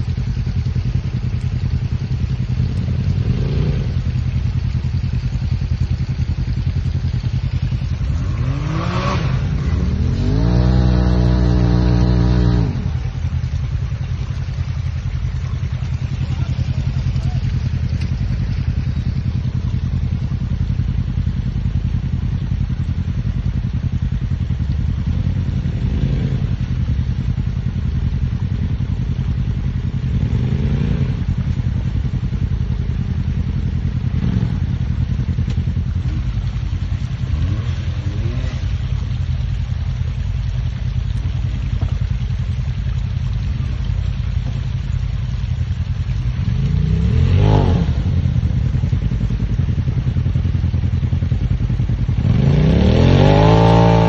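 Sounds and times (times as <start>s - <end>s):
off-road vehicle engines revving: 0.0s - 54.0s.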